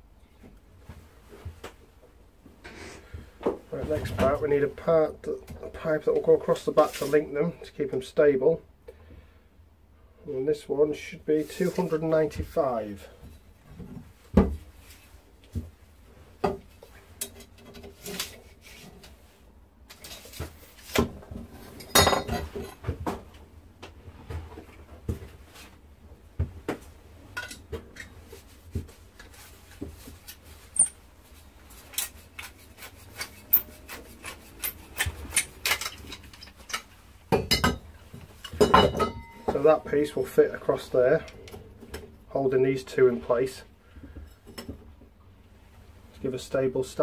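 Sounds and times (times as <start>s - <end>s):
metal pipes clinking: 21.7s - 22.9s, 30.6s - 31.0s, 33.5s - 39.8s
metal rubbing and scraping: 31.6s - 37.0s.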